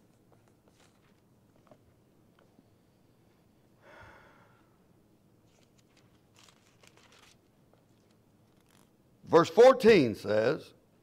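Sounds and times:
thin pages being turned: 0:00.3 - 0:01.8, 0:05.5 - 0:08.9
soft breath: 0:03.8 - 0:04.8.

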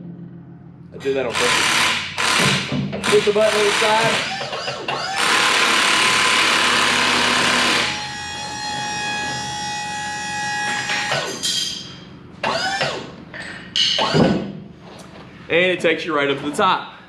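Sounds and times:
hydraulic pump motor whine: 0:01.0 - 0:11.5, 0:12.4 - 0:13.2.

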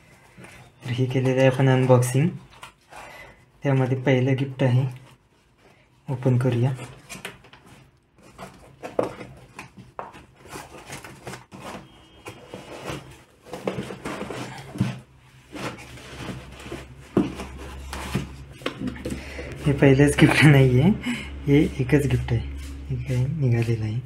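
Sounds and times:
cardboard flaps rustling and scraping: 0:06.2 - 0:20.8.

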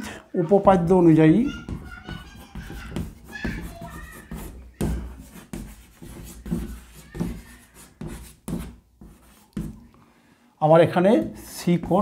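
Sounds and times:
writing and handling on desk: 0:00.6 - 0:09.9.

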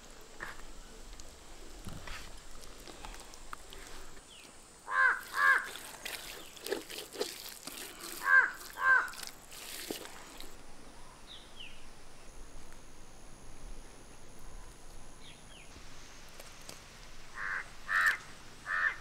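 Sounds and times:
crow cawing: 0:04.8 - 0:05.8, 0:08.2 - 0:09.3, 0:17.3 - 0:19.0.

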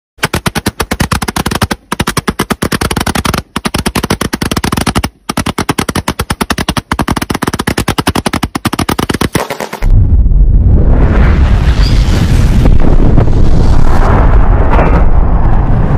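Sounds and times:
firework cake firing rapid shots: 0:00.2 - 0:09.9.

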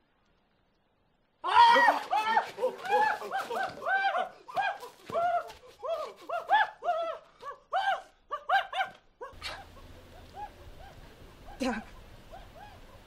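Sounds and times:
low steady hum: 0:09.4 - 0:13.0.

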